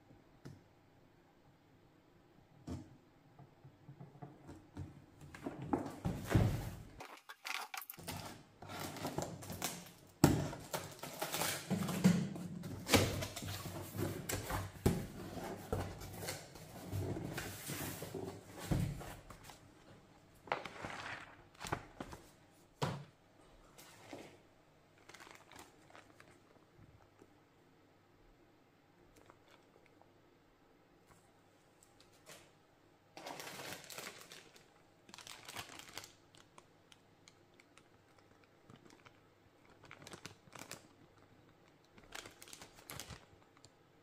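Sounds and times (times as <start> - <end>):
cardboard scraping and rustling: 13.3 - 19.5.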